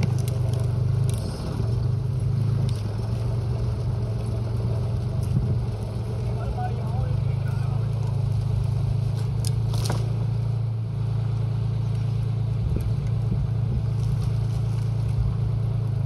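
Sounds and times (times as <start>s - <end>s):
twigs crackling: 0.0s - 10.5s, 13.8s - 16.0s
branches rustling and scraping: 0.0s - 16.0s
diesel engine idling: 0.0s - 16.0s.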